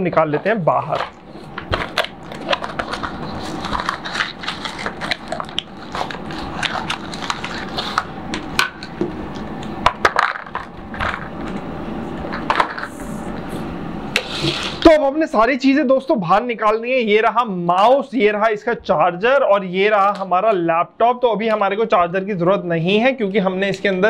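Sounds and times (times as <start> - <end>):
cardboard and plastic packaging crackling: 0.4 - 11.6.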